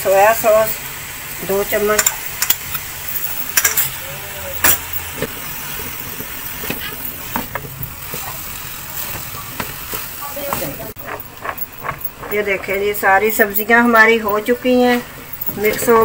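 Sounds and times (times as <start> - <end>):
food sizzling in wok: 0.0 - 12.0
spatula scraping pan: 5.0 - 14.6.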